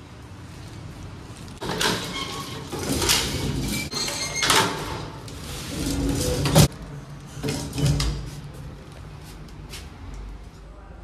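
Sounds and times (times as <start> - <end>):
metal lift gate rattling and scraping: 1.6 - 6.7, 7.3 - 8.5.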